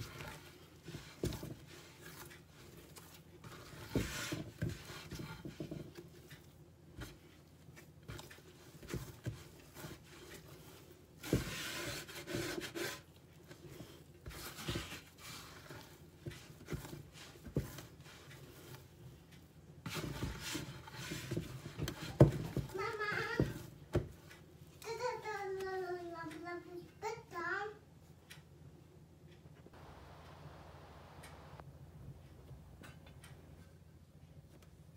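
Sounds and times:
dough rubbing and pressing: 0:00.0 - 0:25.9.

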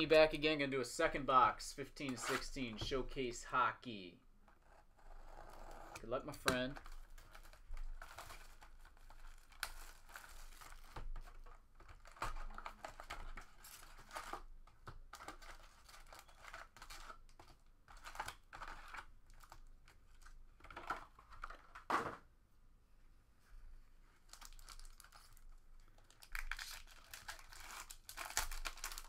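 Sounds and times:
plastic shrink-wrap crinkling and tearing: 0:06.5 - 0:20.4, 0:24.2 - 0:29.0
foil packs and cardboard rustling: 0:26.0 - 0:29.0.

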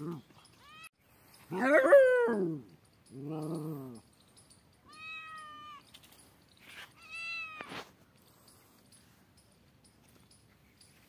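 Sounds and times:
cat yowling: 0:00.6 - 0:00.9, 0:04.8 - 0:05.9, 0:07.0 - 0:07.7.

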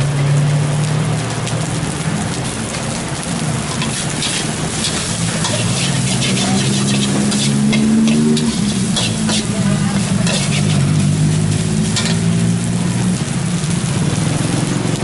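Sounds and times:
rushing sizzle: 0:00.0 - 0:15.0
spatula scraping a wok: 0:03.6 - 0:12.4.

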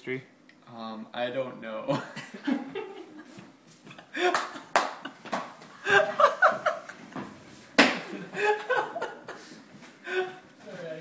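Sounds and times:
man laughing: 0:03.9 - 0:07.0, 0:08.1 - 0:10.4.

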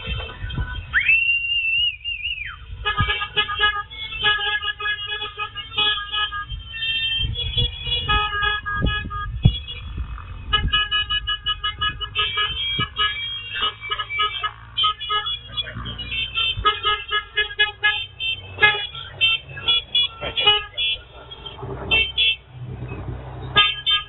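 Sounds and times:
golf cart horns tooting: 0:00.0 - 0:22.5, 0:23.4 - 0:24.0
whistle-like tone: 0:00.9 - 0:02.7.

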